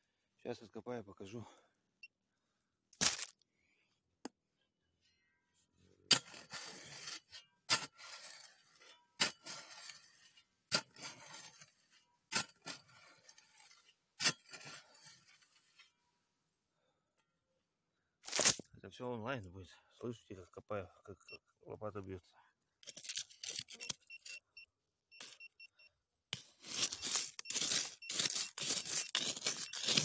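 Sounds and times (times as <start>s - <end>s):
shovel striking sand: 26.4s - 30.0s
sand scraping rustle: 26.5s - 30.0s.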